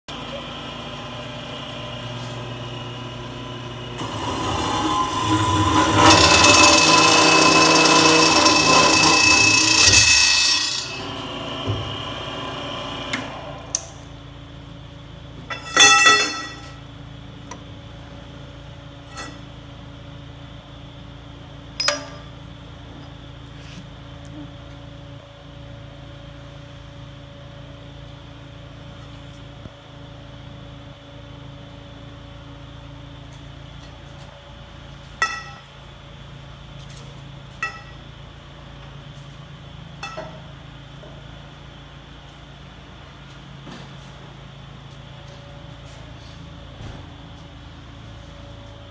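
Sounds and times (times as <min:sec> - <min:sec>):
steady low hum: 0:00.1 - 0:48.9
metal-cutting circular saw: 0:03.3 - 0:14.0.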